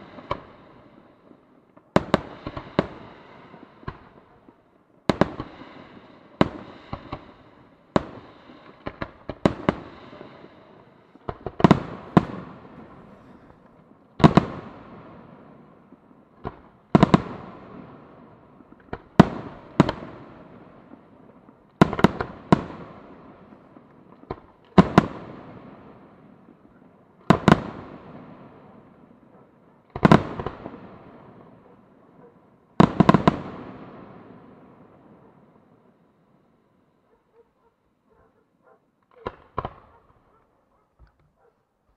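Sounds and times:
firework shells bursting: 0:11.2 - 0:15.0.

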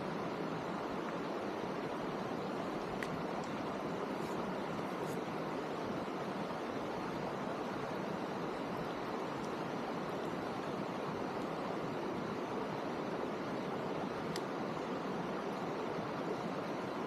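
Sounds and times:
faint raindrop ticks: 0:02.9 - 0:03.6, 0:14.3 - 0:14.5.

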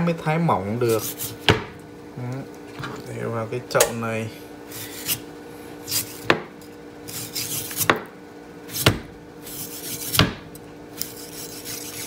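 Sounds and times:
knife sawing through frozen meat: 0:00.8 - 0:01.4, 0:05.8 - 0:06.3, 0:07.0 - 0:07.9, 0:08.7 - 0:10.2, 0:11.0 - 0:12.0.

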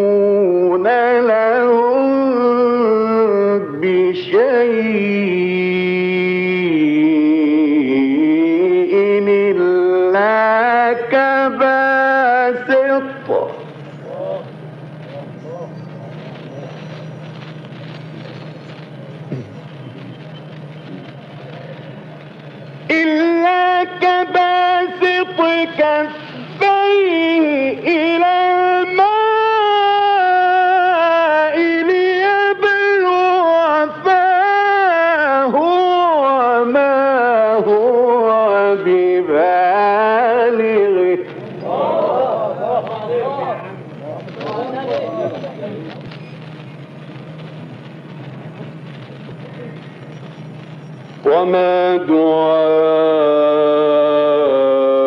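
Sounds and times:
man reciting melodically: 0:00.0 - 0:16.5, 0:22.8 - 0:45.6, 0:51.2 - 0:55.0.

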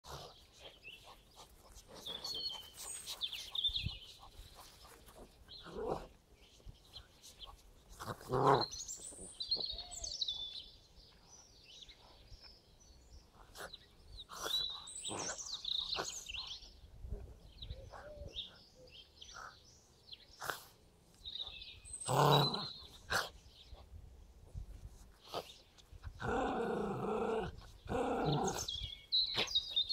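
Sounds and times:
dogs vocalising while play-fighting: 0:00.0 - 0:06.7, 0:07.3 - 0:10.0, 0:13.3 - 0:18.6, 0:19.3 - 0:19.6, 0:25.1 - 0:29.9
songbirds chirping: 0:00.0 - 0:29.9.

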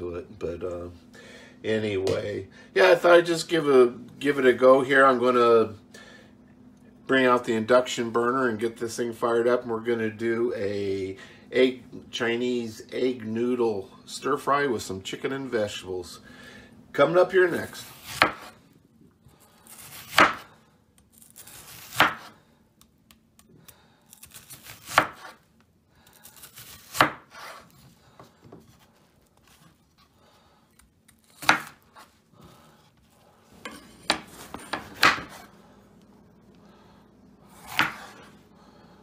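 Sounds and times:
knife chopping on cutting board: 0:17.8 - 0:18.6, 0:19.8 - 0:20.5, 0:21.6 - 0:22.4, 0:24.2 - 0:25.4, 0:26.5 - 0:27.6, 0:31.2 - 0:32.1, 0:33.6 - 0:35.5, 0:37.5 - 0:38.3.

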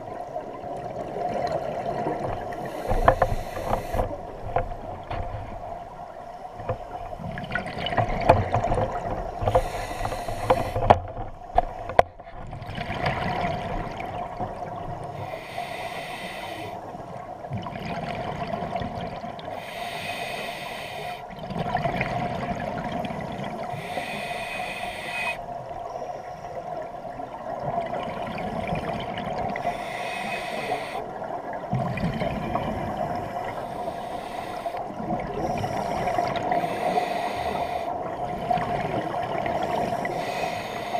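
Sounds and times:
regulator inhale hiss: 0:02.6 - 0:04.2, 0:09.4 - 0:10.9, 0:15.2 - 0:16.9, 0:19.5 - 0:21.3, 0:23.7 - 0:25.5, 0:29.6 - 0:31.1, 0:33.3 - 0:38.0, 0:39.4 - 0:40.9.

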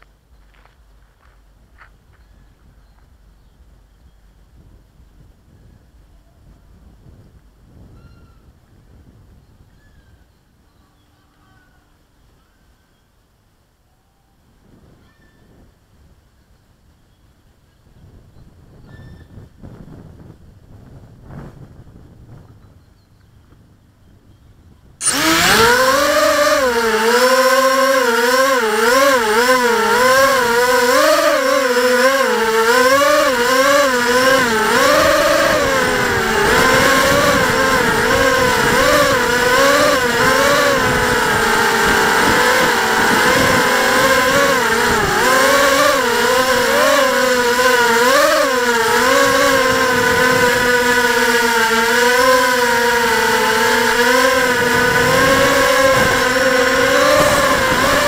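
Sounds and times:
quadcopter propeller whine: 0:25.0 - 0:58.0.

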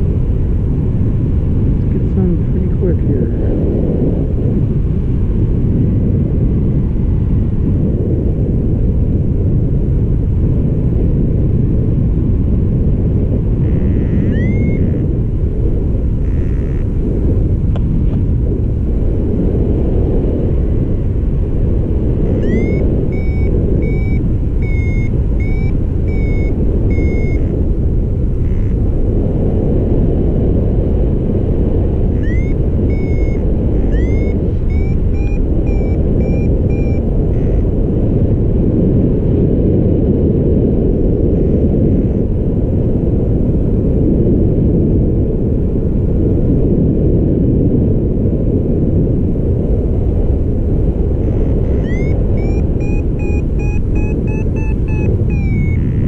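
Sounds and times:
wind rushing over microphone: 0:00.0 - 0:56.0
variometer beeping: 0:13.6 - 0:15.1, 0:16.2 - 0:16.9, 0:22.2 - 0:27.7, 0:32.1 - 0:37.7, 0:51.1 - 0:56.0.

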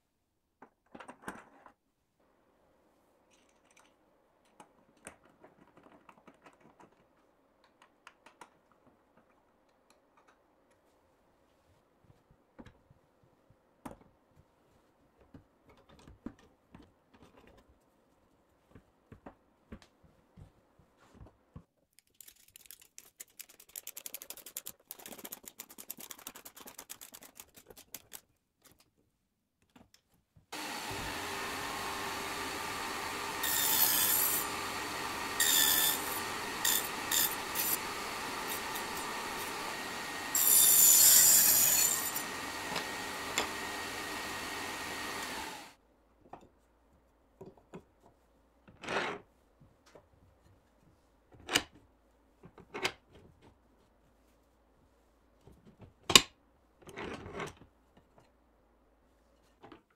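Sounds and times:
electric power tool cutting wood: 0:30.6 - 0:45.7.

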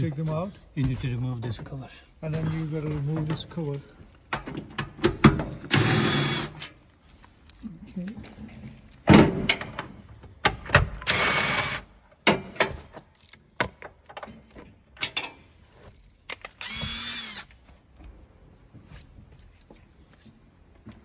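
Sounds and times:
cordless drill running: 0:05.7 - 0:06.6, 0:16.6 - 0:17.5.

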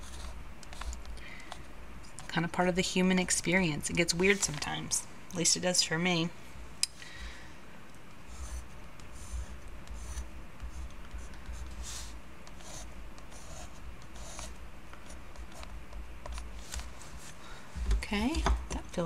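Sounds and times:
low steady hum: 0:00.0 - 0:19.0
pencil scratching on paper: 0:08.3 - 0:15.7.

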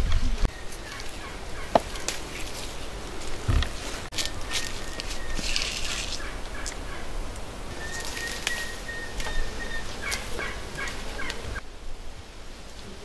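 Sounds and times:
flowers being picked by hand: 0:00.0 - 0:11.6
turkey gobbling: 0:07.7 - 0:11.4.

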